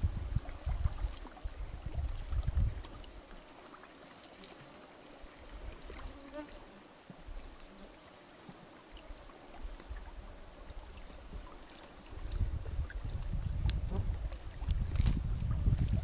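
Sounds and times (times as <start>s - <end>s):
wind on microphone: 0.0s - 3.3s, 9.5s - 16.0s
water lapping: 0.0s - 16.0s.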